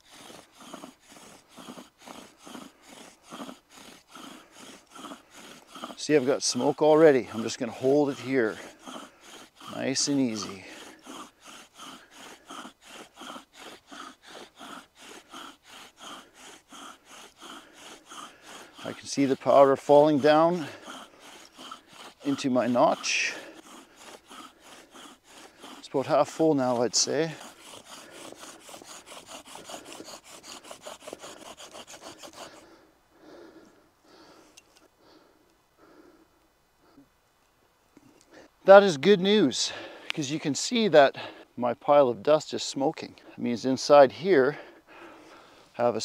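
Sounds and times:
bow drill rasping: 0.0 - 36.2.

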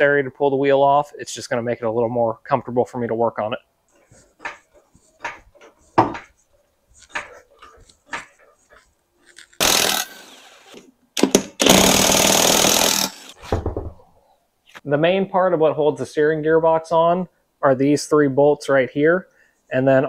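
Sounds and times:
scattered clicks and knocks: 4.0 - 6.4, 7.0 - 9.7
impact wrench hammering lug nuts: 9.6 - 10.2, 11.2 - 13.2.

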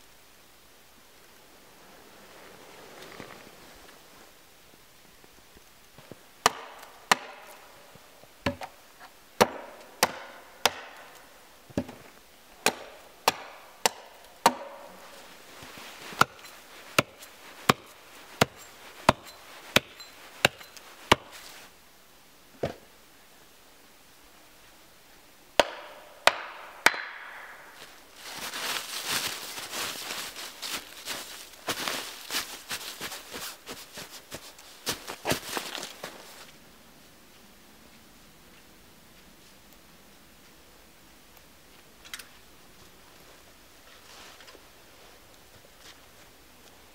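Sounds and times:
hatchet chopping wood: 6.4 - 7.6, 9.4 - 11.2, 12.6 - 14.9, 16.2 - 21.4, 25.6 - 27.5
boots crunching in snow and leaves: 14.8 - 21.7, 27.7 - 36.6.

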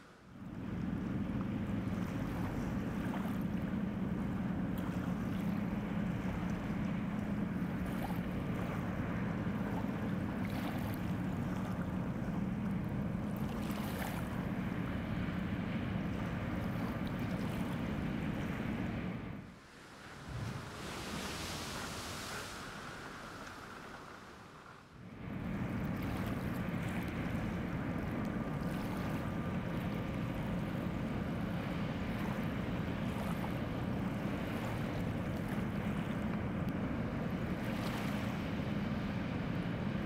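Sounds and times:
ship diesel engine humming: 0.5 - 40.0
water wash: 19.5 - 40.0
wind noise: 19.7 - 26.2.

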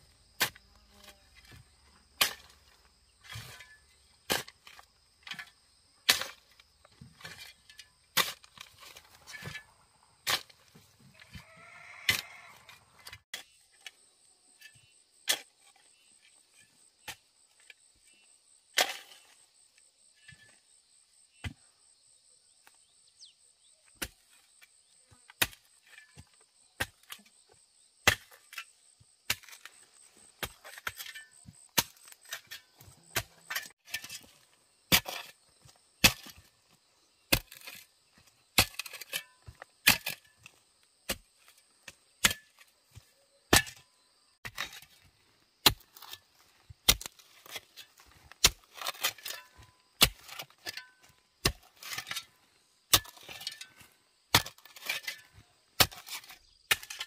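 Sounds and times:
spade chopping into clay soil: 25.4 - 27.2, 28.0 - 28.7, 30.4 - 36.5, 37.3 - 46.2, 46.8 - 52.3, 52.9 - 57.0
soil clods cracking and crumbling: 45.6 - 57.0.

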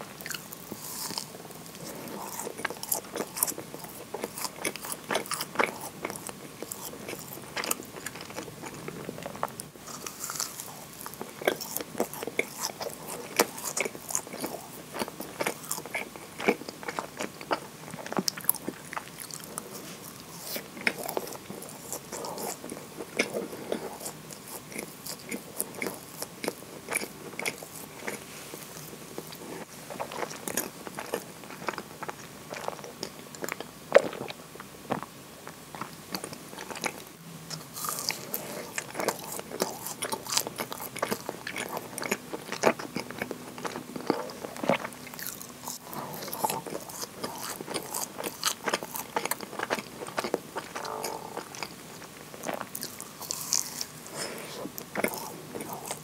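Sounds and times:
wet chewing mouth clicks: 37.8 - 56.0.

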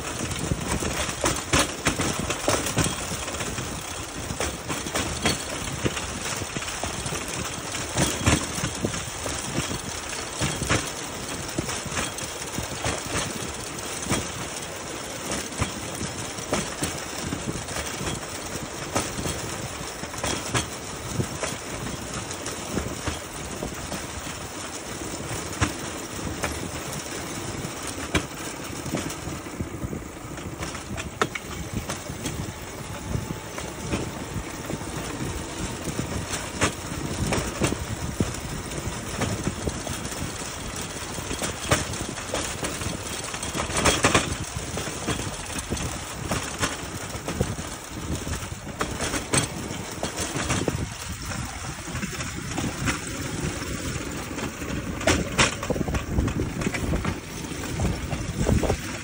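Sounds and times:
steel wheels rumbling on track: 0.0 - 59.0
sharp clicks and knocks: 30.3 - 59.0.

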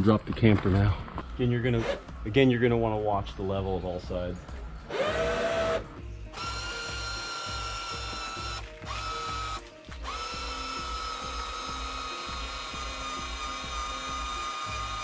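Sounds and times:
electric jack motors whining: 4.9 - 15.0.

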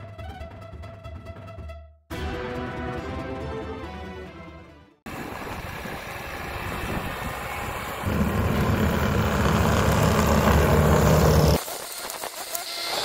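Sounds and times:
diesel engine running: 5.1 - 11.6.

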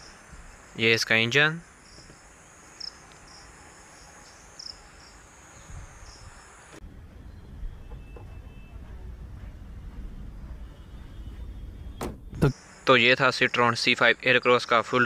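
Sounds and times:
high insect-like chirps: 0.0 - 6.8, 12.4 - 15.0.

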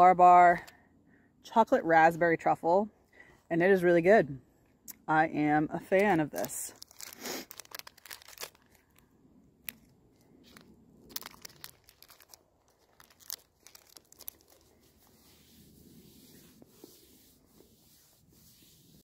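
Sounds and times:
plastic wrapper crinkling: 5.9 - 15.5.

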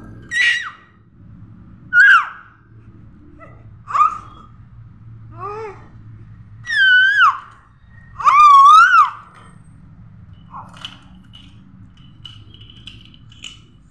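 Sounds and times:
baby squealing: 0.2 - 1.0, 3.9 - 4.5, 6.6 - 9.4.

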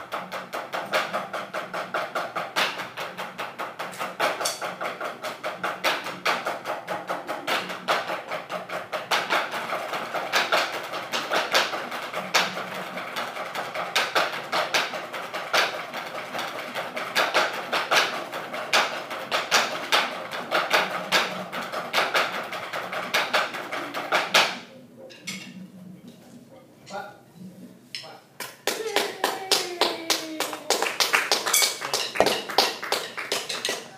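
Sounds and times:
drumsticks on practice pads: 0.1 - 9.6, 31.5 - 33.9.

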